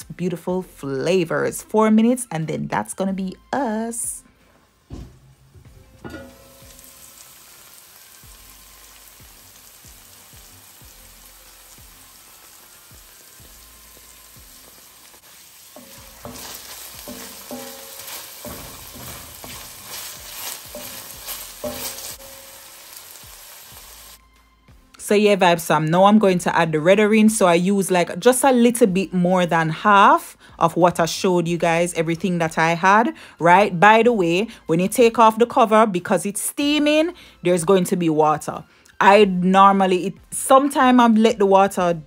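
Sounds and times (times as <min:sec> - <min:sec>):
vegetables sizzling in oil: 0:06.0 - 0:24.2.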